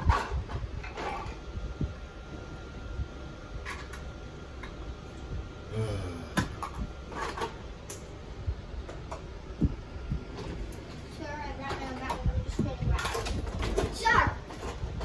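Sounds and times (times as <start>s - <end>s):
plastic toys clicking and knocking: 11.6s - 15.0s.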